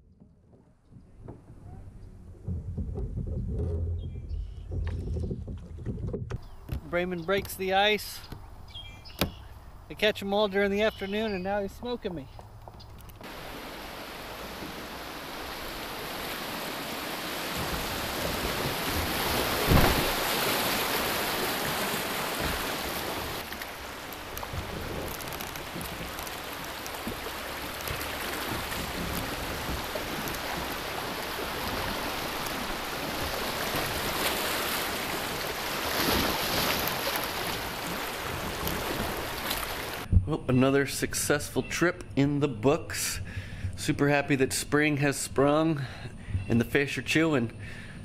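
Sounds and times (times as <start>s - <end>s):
wind buffeting microphone: 0.7s - 6.8s
river rapid rushing: 13.2s - 40.1s.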